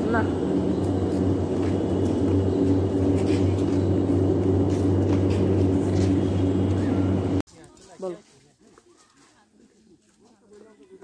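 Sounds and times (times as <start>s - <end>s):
large fans humming: 0.0s - 7.4s.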